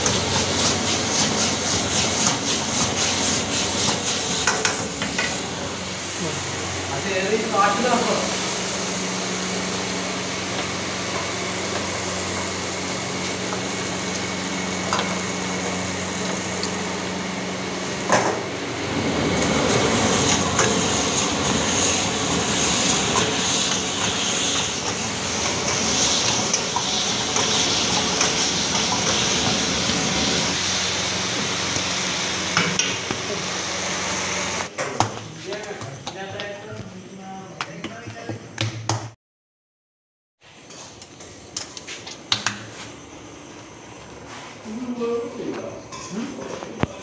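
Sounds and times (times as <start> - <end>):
loud sizzling in a wok: 0.0 - 34.7
steady range hum: 0.0 - 38.6, 40.5 - 47.0.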